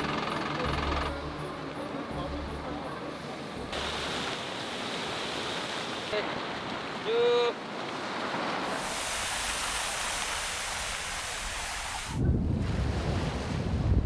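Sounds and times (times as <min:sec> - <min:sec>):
wind rumble on microphone: 0:11.9 - 0:14.0.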